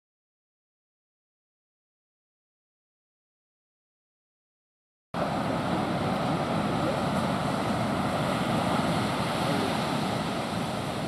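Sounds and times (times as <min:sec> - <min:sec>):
ocean surf breaking: 0:05.2 - 0:11.0.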